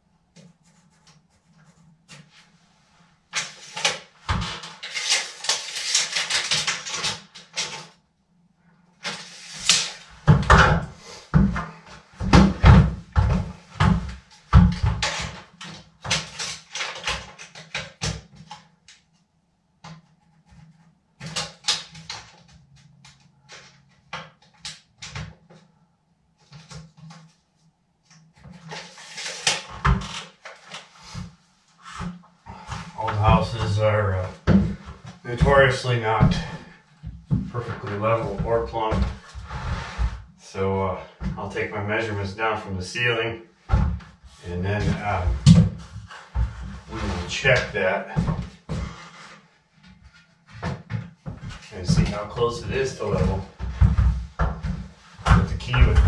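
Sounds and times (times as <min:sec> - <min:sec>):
scraping and rustling: 0:38.9 - 0:40.3.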